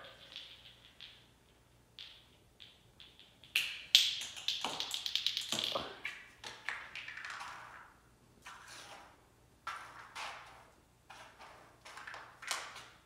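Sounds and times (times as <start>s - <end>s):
ball bouncing on tile floor: 0.0s - 8.6s.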